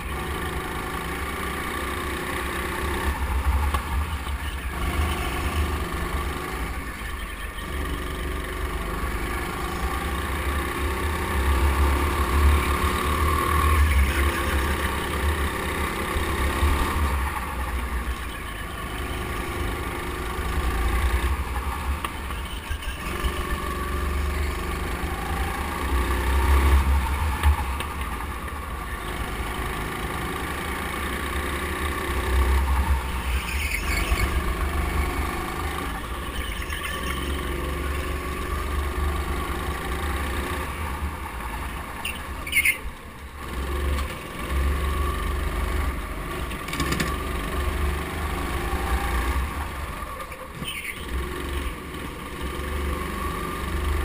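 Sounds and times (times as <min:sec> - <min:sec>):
go-kart engine revving: 0:00.0 - 0:54.0
tyre squeals: 0:33.0 - 0:37.9.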